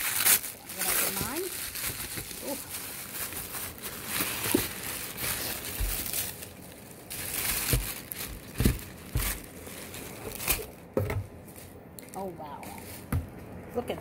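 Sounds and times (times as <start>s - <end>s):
paper and bubble wrap crinkling: 0.0s - 13.1s
dull bumps of handling: 7.5s - 9.5s.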